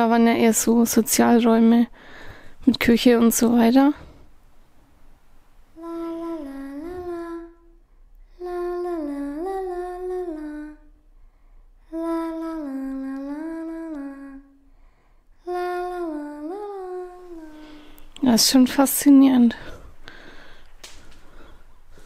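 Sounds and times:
person humming low note: 5.8s - 11.0s, 11.8s - 14.7s, 15.4s - 18.0s.

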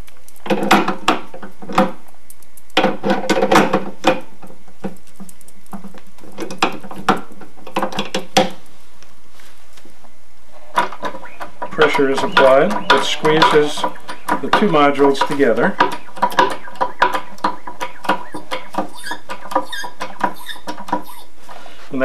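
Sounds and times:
metal clicks and clatter: 0.3s - 8.6s.

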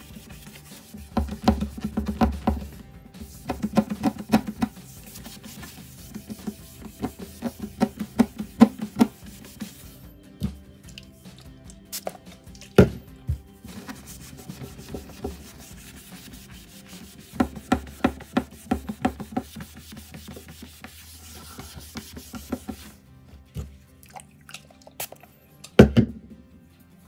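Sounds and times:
wipe scrubbing wooden tabletop: 0.0s - 10.1s, 13.4s - 23.0s.

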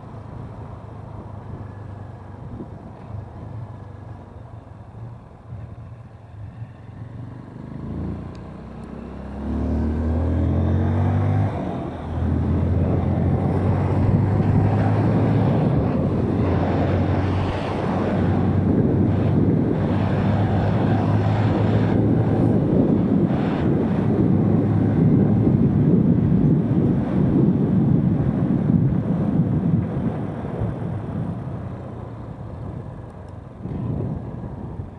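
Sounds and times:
wind noise on microphone: 1.0s - 7.2s, 8.8s - 34.9s
motorcycle engine accelerating: 7.4s - 30.2s.

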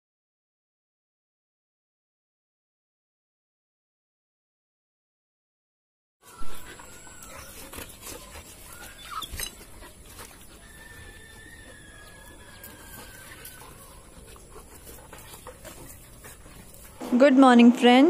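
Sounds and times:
faint thin dog whine: 6.2s - 17.0s
paws scraping dry soil: 6.2s - 18.0s.

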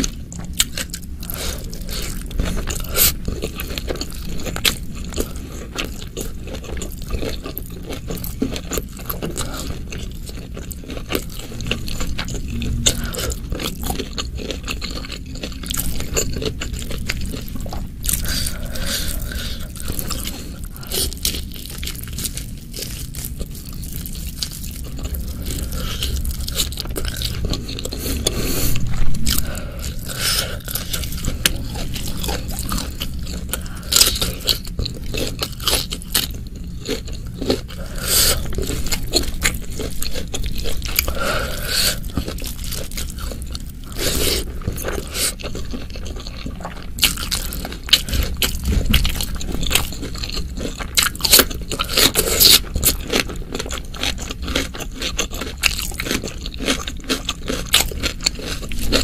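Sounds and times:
food crunches: 0.0s - 59.0s
wet chewing: 0.0s - 59.0s.

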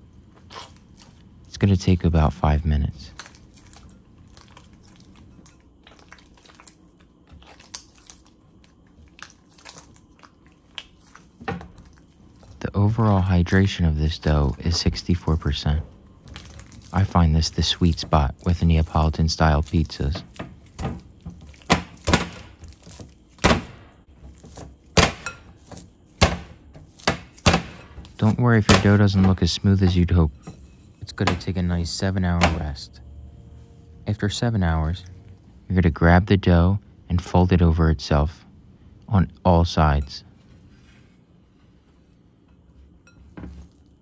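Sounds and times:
hands squishing wet dough: 0.0s - 32.8s
hand slapping wet dough: 16.2s - 29.3s.

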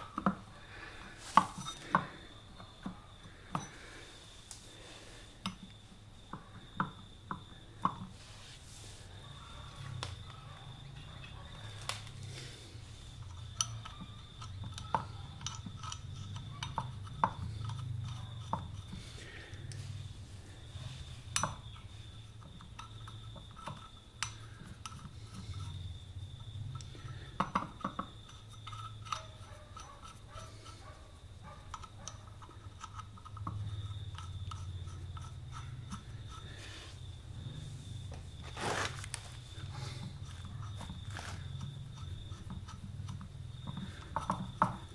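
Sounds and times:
metallic clicks of nuts spinning: 13.2s - 19.5s, 21.1s - 30.9s, 31.7s - 36.6s, 39.2s - 44.9s.

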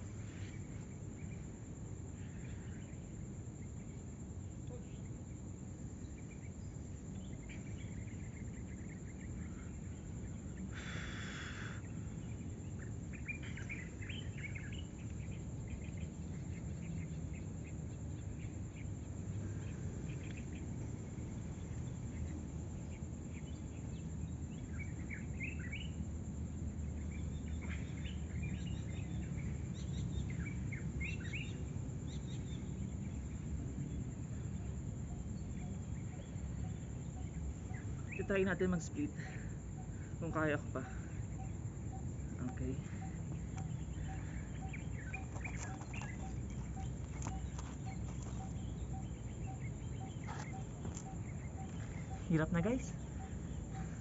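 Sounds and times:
low outdoor rumble: 0.0s - 54.0s
birds chirping: 6.1s - 26.0s, 35.2s - 54.0s.

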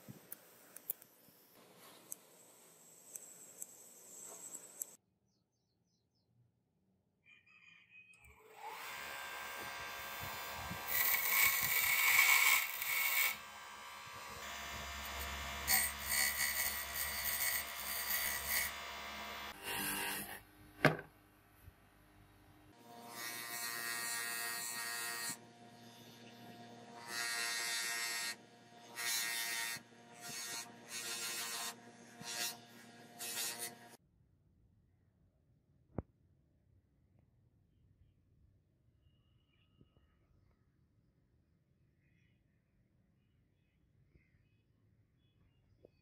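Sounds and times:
bench grinder motor hum: 8.5s - 20.4s
metal grinding hiss: 15.1s - 18.8s.

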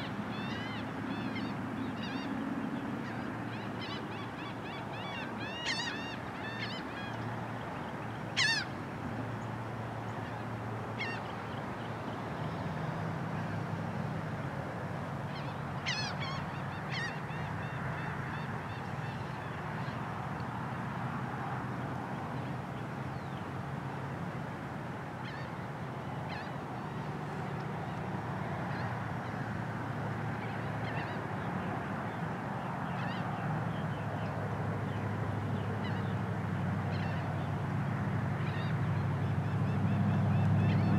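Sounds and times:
birds honking calls: 8.4s - 8.7s.

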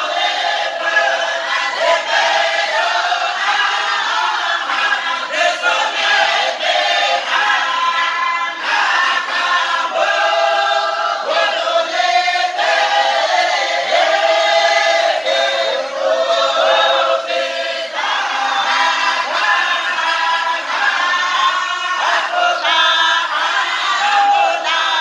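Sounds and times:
men chanting together: 0.0s - 25.0s.

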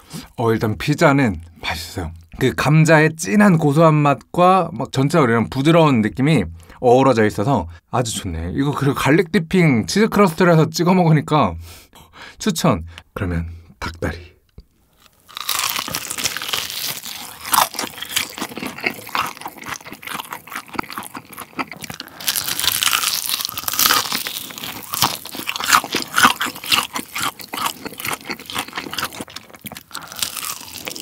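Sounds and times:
fried chicken crunching: 15.0s - 31.0s.

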